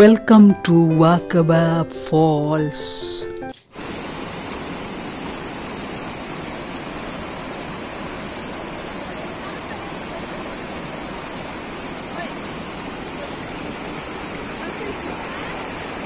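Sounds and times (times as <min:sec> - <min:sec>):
rush of flowing water: 0:03.7 - 0:16.0.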